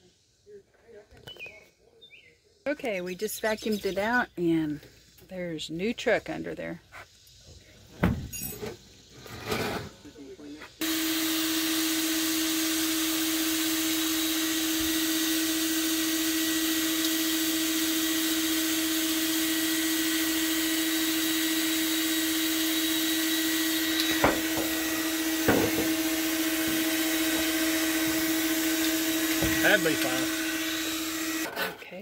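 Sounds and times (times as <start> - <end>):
shop vacuum running: 10.8 - 31.6.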